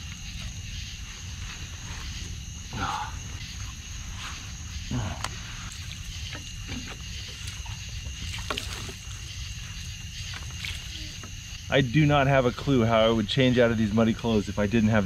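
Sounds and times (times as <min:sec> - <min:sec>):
night insects chirring: 0:00.0 - 0:15.0
water splashing: 0:05.7 - 0:11.5.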